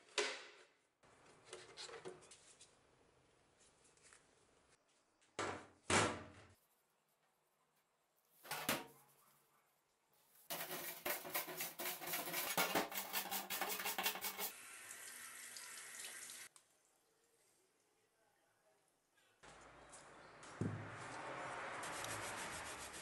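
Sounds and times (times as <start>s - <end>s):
scouring pad scrubbing metal: 10.5s - 14.5s.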